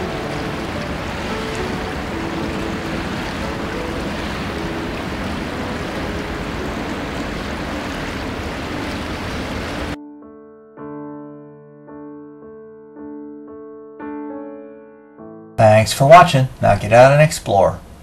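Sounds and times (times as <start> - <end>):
creek water rushing: 0.0 - 10.0
soft piano music: 0.0 - 16.2.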